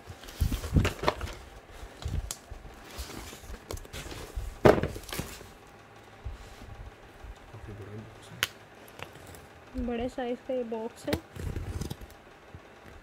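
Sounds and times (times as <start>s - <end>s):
cardboard box thumps: 4.0s - 5.4s
cardboard box scraping: 11.3s - 12.1s.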